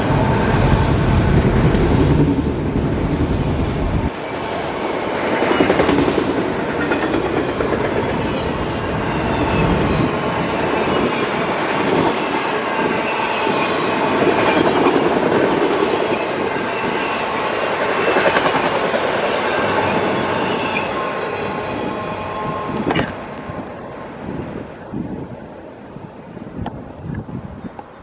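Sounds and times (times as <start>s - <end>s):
freight train wheels clacking on rails: 0.0s - 23.5s.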